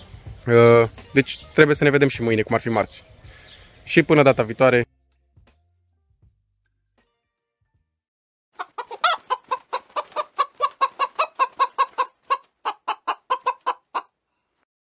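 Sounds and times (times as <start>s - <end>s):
chicken clucking: 8.6s - 14.1s.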